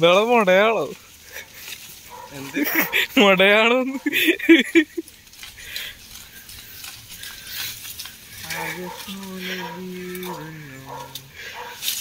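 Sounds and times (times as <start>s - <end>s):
leaves rustling and crackling: 0.0s - 12.0s
person humming: 8.4s - 11.4s.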